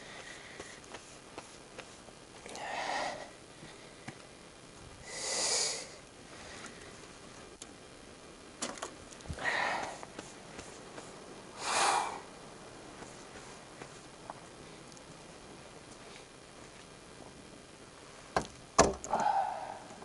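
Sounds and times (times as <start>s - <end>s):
person sniffing: 5.0s - 6.0s, 11.6s - 12.2s.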